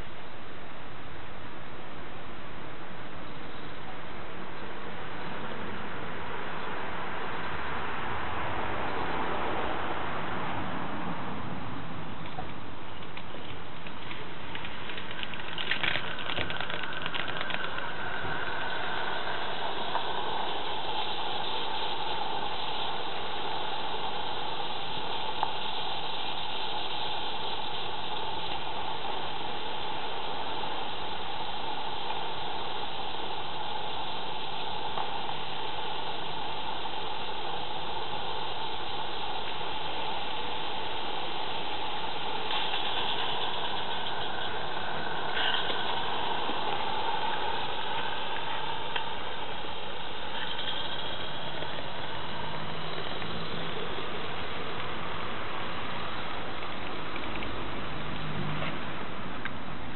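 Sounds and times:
steam locomotive hissing: 0.0s - 59.9s
faint clicks: 12.2s - 34.0s.

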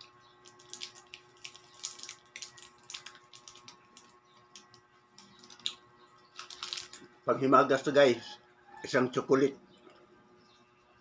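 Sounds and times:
wrapper crinkling: 0.0s - 4.8s, 5.4s - 7.1s.

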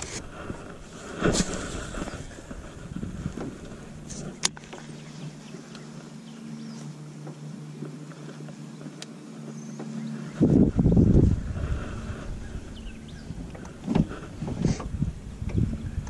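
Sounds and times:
electric motor humming: 1.9s - 16.0s.

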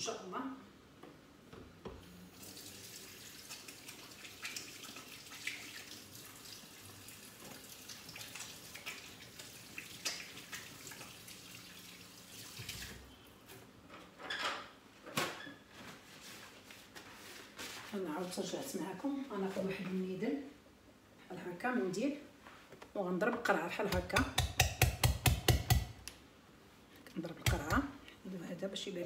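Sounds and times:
water running into a sink: 2.3s - 13.0s.

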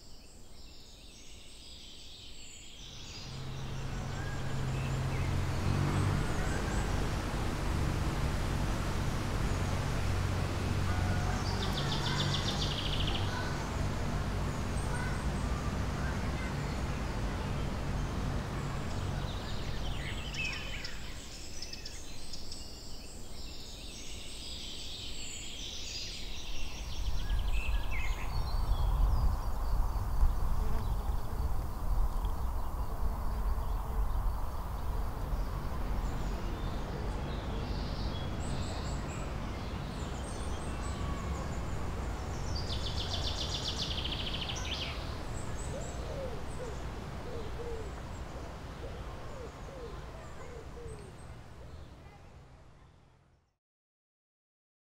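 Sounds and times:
low rumble of wind: 0.0s - 53.5s
small birds chirping: 11.5s - 52.4s
low hooting or cooing calls: 45.5s - 51.2s.

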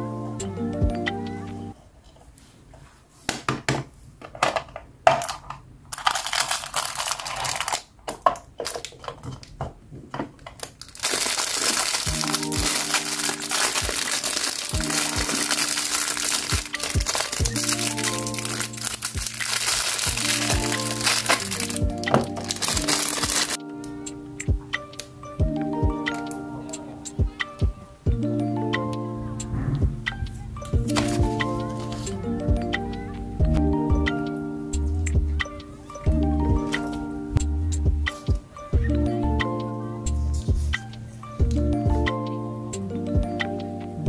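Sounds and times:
light background music: 0.0s - 1.8s, 11.1s - 44.0s
plastic capsule clicking and rattling: 4.4s - 9.6s, 10.4s - 23.6s
plastic wrapper crinkling: 5.2s - 9.5s, 10.6s - 23.6s, 30.9s - 32.1s.

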